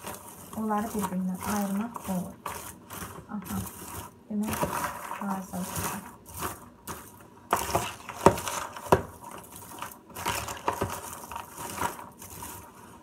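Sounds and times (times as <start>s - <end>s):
caramel popcorn crunching: 0.0s - 13.0s
wooden spoon knocking plastic bowl: 7.5s - 9.2s.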